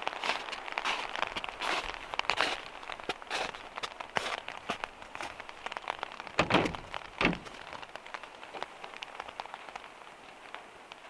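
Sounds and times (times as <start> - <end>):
footsteps crunching on icy snow: 0.0 - 7.9
freezing rain pattering on van roof: 0.0 - 11.0
heavy thunks: 6.3 - 7.7.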